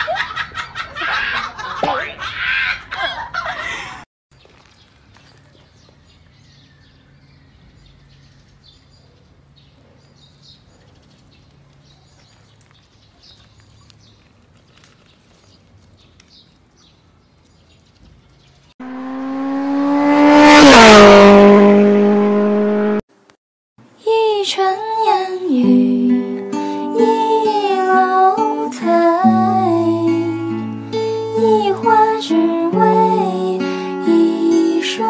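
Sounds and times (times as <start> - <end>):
small birds chirping: 4.3 - 18.8
car passing by: 18.8 - 23.0.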